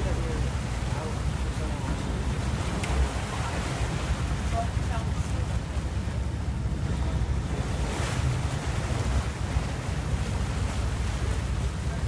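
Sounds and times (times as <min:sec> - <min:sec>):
sea waves rushing: 0:00.0 - 0:12.0
wind buffeting microphone: 0:00.0 - 0:12.0.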